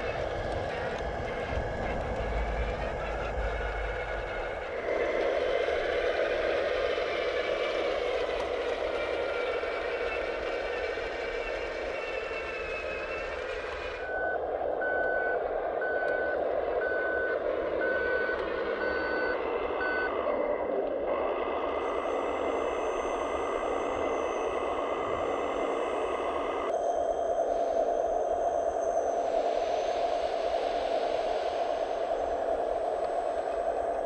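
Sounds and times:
reversing beeps: 9.9 - 20.4
thin high whine: 21.8 - 34.0.

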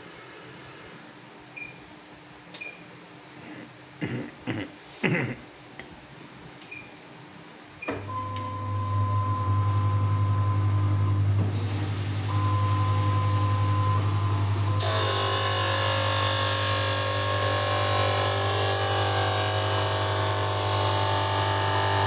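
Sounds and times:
motor humming with thin whine: 7.8 - 22.0.

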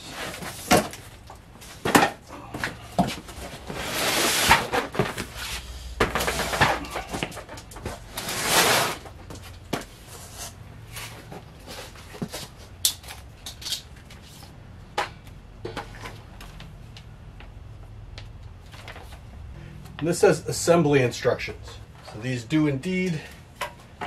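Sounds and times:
paper and cardboard rustling: 0.0 - 9.9.

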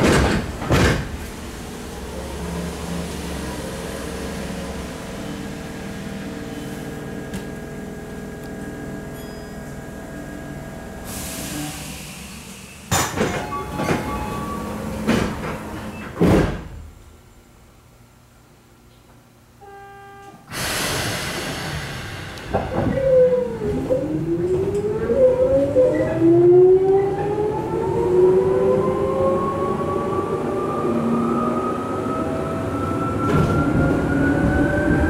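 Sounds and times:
sliding doors clunking shut: 0.0 - 1.5, 12.9 - 16.9
train equipment hum: 0.0 - 35.0
air hiss: 20.5 - 22.8.

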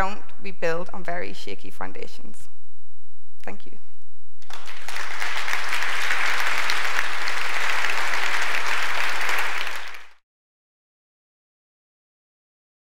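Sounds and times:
audience applauding: 4.4 - 10.2.

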